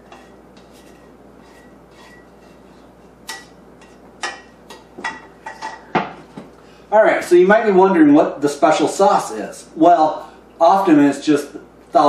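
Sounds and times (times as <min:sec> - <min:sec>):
utensil scraping a frying pan: 0:00.0 - 0:05.9.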